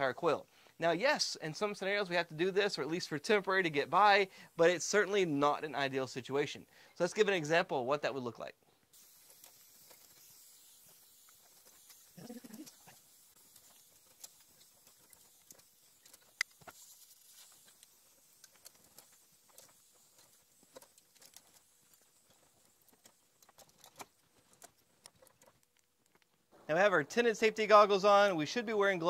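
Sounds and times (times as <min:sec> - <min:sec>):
low hiss: 0:00.0 - 0:29.0
metal fins clicking and crinkling: 0:08.9 - 0:26.6.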